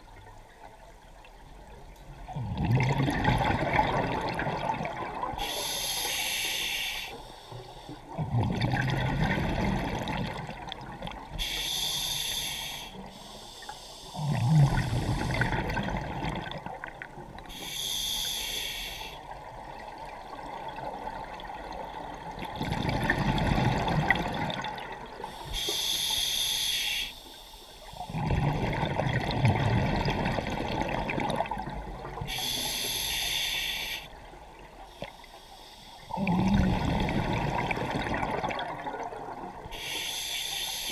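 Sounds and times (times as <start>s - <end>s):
exhaled bubbles rushing: 2.3s - 5.4s, 8.2s - 11.2s, 14.3s - 17.1s, 22.4s - 25.2s, 28.1s - 32.2s, 36.1s - 39.6s
regulator hissing inhale: 5.4s - 8.1s, 11.4s - 15.6s, 17.4s - 19.2s, 25.2s - 28.1s, 32.3s - 34.2s, 34.8s - 36.2s, 39.7s - 40.9s.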